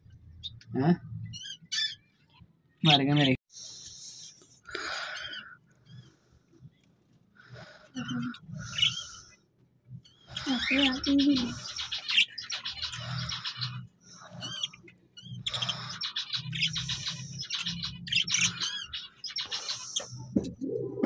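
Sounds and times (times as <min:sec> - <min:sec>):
parrots chirping and chattering: 0:00.2 - 0:21.0
pigeons cooing: 0:20.3 - 0:21.0.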